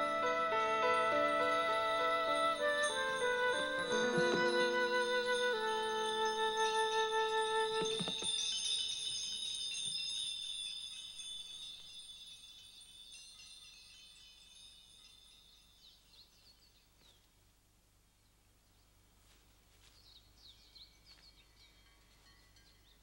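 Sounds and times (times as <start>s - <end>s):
shimmering chimes ringing: 0.0s - 16.4s, 20.8s - 23.0s
faint bird chirps: 19.8s - 23.0s.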